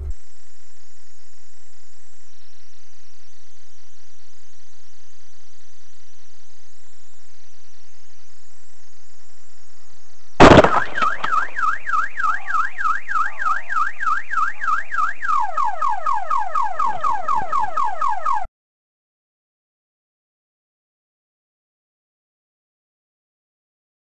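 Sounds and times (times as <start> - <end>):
sudden loud bang: 10.4 - 11.6
car alarm: 10.4 - 18.5.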